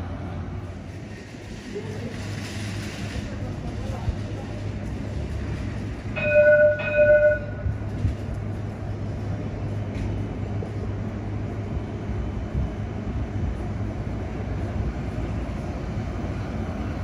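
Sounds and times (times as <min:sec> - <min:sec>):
tram humming and rumbling: 0:00.0 - 0:17.0
tram warning bell: 0:06.0 - 0:08.0.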